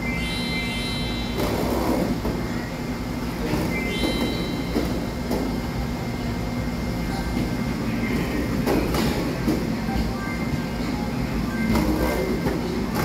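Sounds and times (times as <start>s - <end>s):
brief high-pitched tone: 0.0s - 2.0s, 3.4s - 5.0s
low rumbling din of play area: 0.0s - 13.0s.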